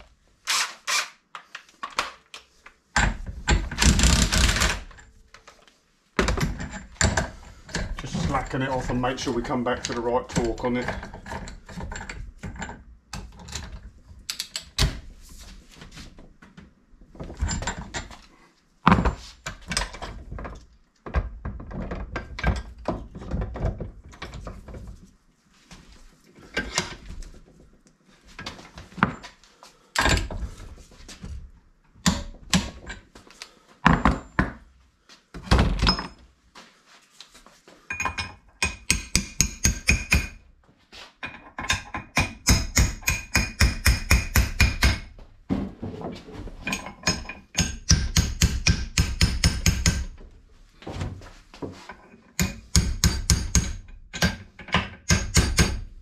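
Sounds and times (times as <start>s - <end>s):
metal tools knocking: 37.9s - 40.4s, 46.6s - 50.2s.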